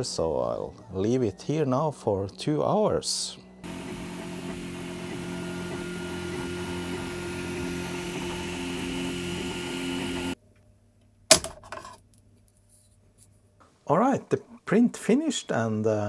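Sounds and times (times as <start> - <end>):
printer fans and motors whirring: 3.6 - 10.4.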